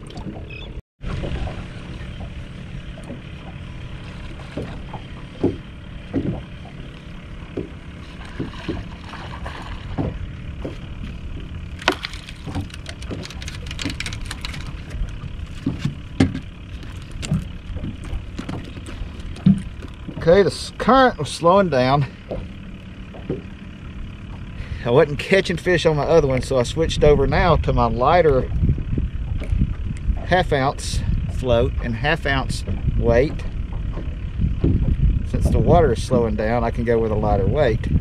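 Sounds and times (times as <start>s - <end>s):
wind and water rumble: 0.0s - 38.0s
rod and reel knocks: 7.5s - 20.3s.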